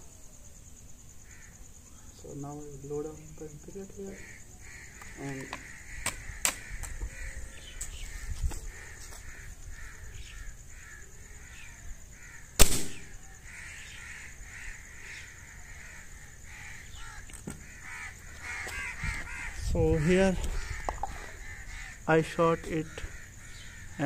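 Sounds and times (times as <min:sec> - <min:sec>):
crows cawing: 0:01.2 - 0:02.1, 0:04.0 - 0:24.0
air rifle shot: 0:12.6 - 0:13.2.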